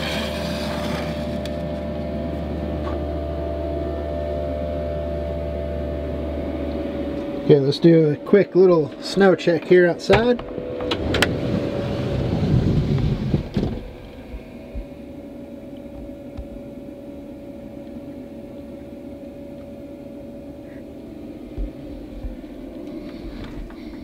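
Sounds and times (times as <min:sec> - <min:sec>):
van sliding door rolling open: 0:10.1 - 0:14.6
quiet steady hum: 0:13.5 - 0:24.0.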